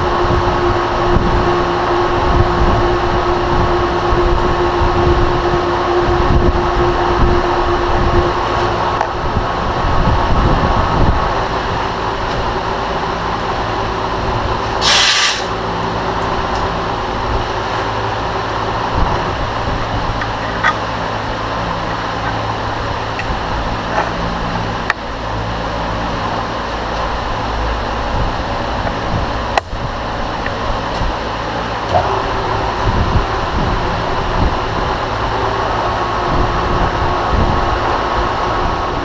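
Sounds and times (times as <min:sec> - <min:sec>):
milling machine droning: 0:00.0 - 0:39.0
brief hiss: 0:14.8 - 0:15.5.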